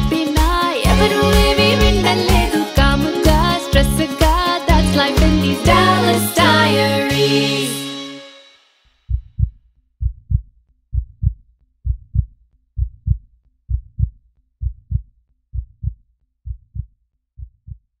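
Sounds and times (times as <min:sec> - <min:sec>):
heartbeat thuds: 0:09.1 - 0:17.9.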